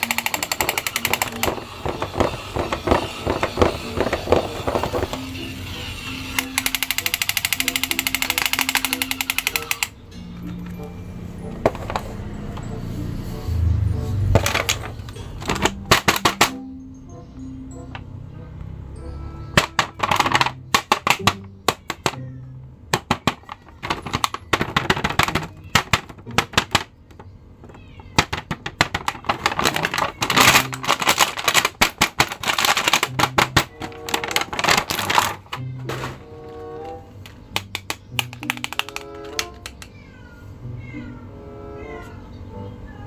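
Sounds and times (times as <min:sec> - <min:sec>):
plastic packaging crackling: 0:28.2 - 0:35.7.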